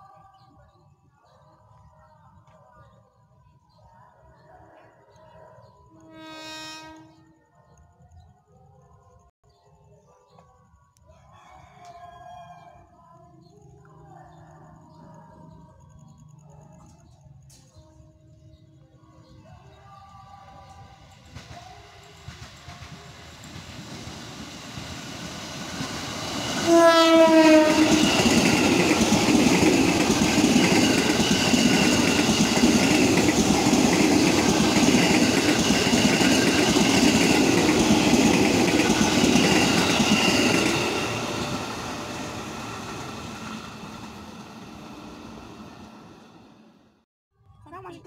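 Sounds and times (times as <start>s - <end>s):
train horn blast: 6.0s - 7.4s, 26.6s - 28.7s
train wheels on rails: 20.7s - 46.7s.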